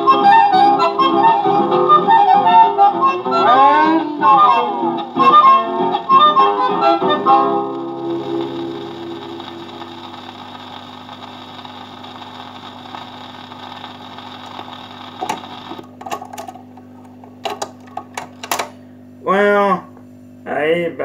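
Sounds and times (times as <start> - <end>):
record music notes: 0.0 - 10.5
record player hum: 0.0 - 19.2
record surface hiss: 0.0 - 21.0.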